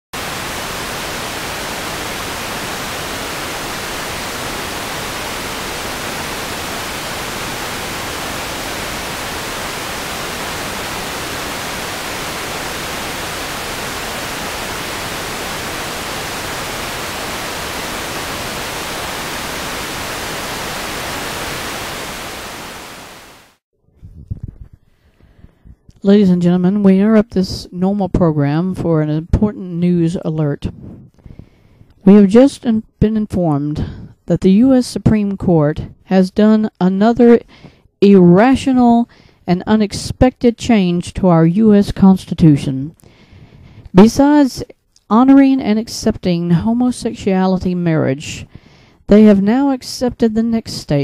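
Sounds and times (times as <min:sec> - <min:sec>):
television static hiss: 0:00.1 - 0:23.6, 0:44.0 - 0:48.3.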